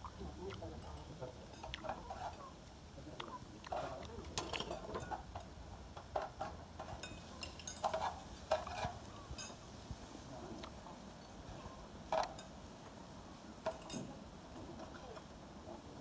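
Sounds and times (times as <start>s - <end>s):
metal ladle scraping a pan: 0.9s - 2.6s, 3.7s - 5.5s, 6.2s - 9.6s.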